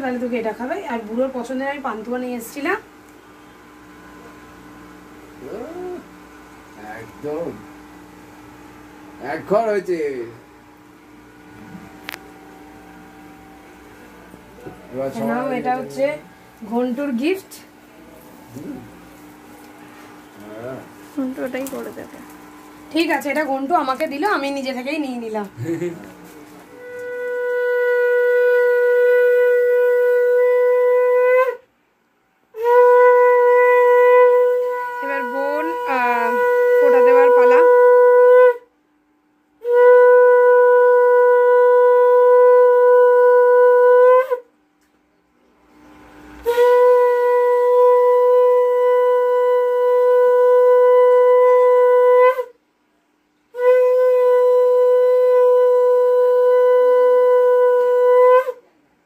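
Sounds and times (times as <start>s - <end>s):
conch shell blasts: 26.7s - 31.6s, 32.5s - 38.7s, 39.6s - 44.5s, 46.3s - 52.6s, 53.5s - 58.6s.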